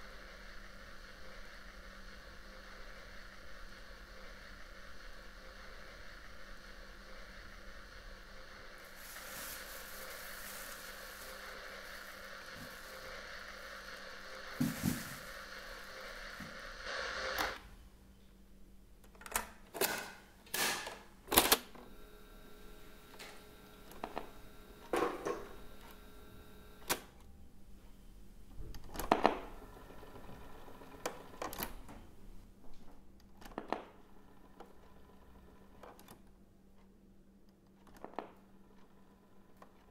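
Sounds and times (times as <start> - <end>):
tape hiss: 0.0 - 19.1, 21.4 - 32.6.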